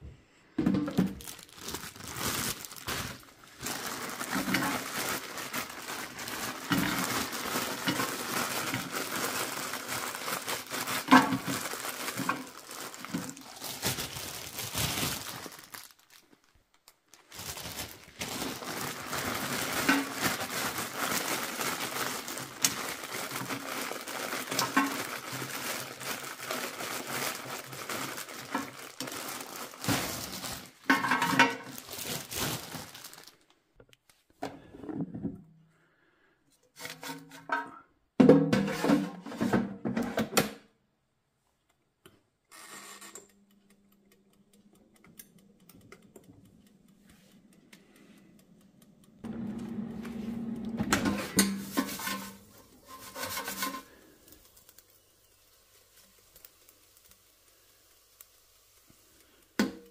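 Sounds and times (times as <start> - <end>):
plastic bags crinkling: 0.9 - 34.2, 50.6 - 58.2.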